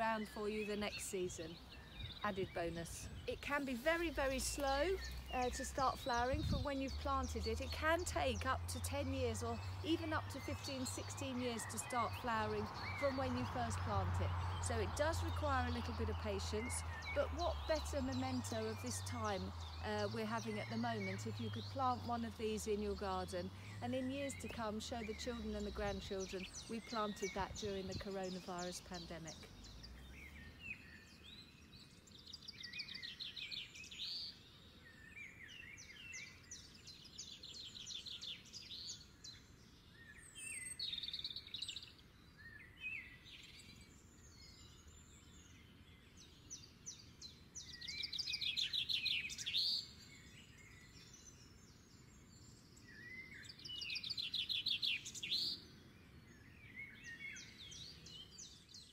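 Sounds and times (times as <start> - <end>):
fast trilled bird song: 0.0 - 58.9
songbirds chirping: 0.0 - 58.9.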